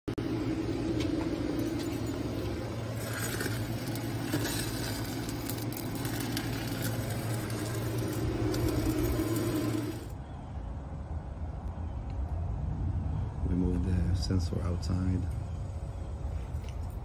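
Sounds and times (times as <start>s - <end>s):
small engine droning: 0.2s - 10.5s.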